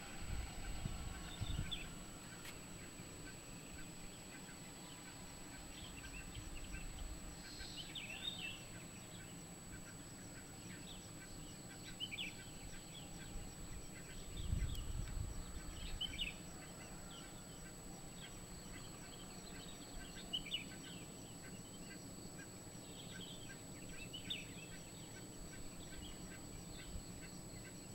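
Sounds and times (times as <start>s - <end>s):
wind rumble on microphone: 0.0s - 2.2s, 13.3s - 16.4s
birds chirping: 0.0s - 27.9s.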